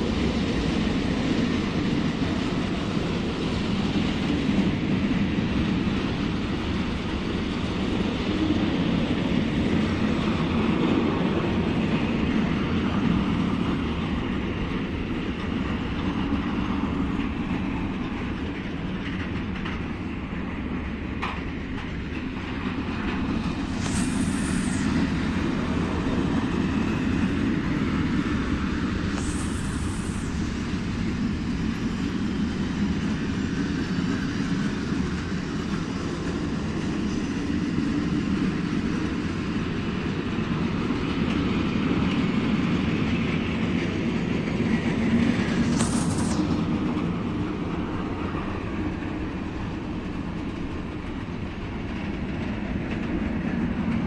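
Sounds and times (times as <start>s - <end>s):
freight train rumbling on rails: 0.0s - 54.0s
brief high-pitched hisses: 23.5s - 27.2s, 28.8s - 31.2s, 45.0s - 48.6s.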